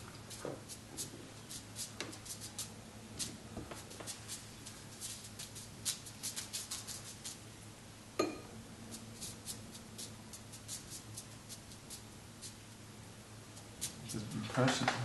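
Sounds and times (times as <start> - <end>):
brush scratching on paper: 0.3 - 7.4, 8.9 - 12.6.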